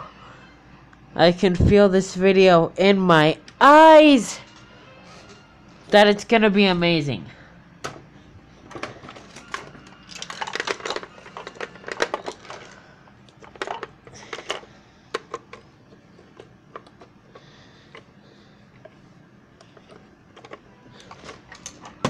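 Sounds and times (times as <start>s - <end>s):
plastic toys clattering: 8.7s - 18.1s, 19.7s - 22.0s.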